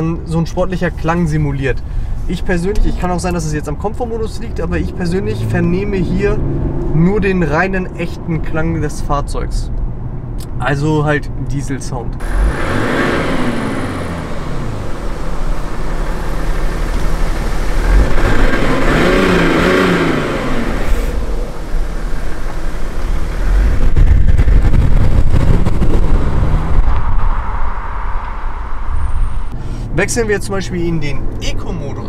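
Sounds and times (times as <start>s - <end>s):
diesel engine revving: 3.7s - 7.6s, 12.2s - 30.1s.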